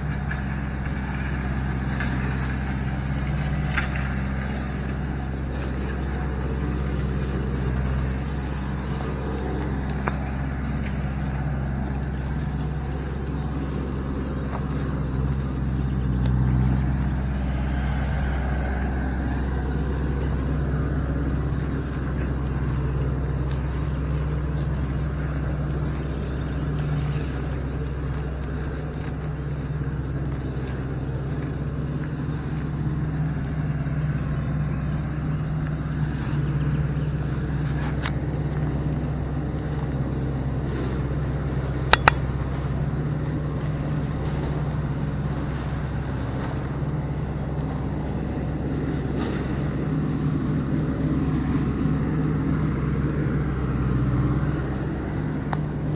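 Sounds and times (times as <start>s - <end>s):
engine running steadily: 0.0s - 55.9s
sharp clicks: 41.9s - 42.2s.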